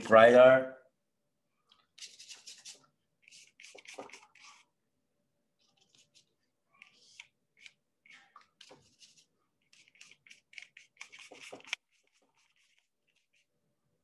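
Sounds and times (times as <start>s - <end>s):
paintbrush scratching on paper: 1.8s - 4.8s, 5.6s - 13.7s.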